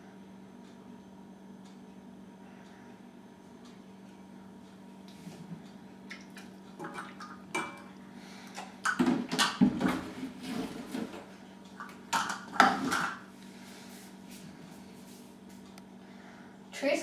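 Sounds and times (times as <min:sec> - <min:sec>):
plastic cups clattering on metal bowl: 0:11.8 - 0:13.2.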